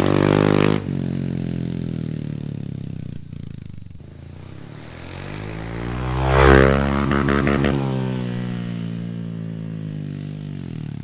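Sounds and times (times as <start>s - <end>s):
exhaust crackles: 0.0s - 11.0s
motorcycle engine running: 0.0s - 11.0s.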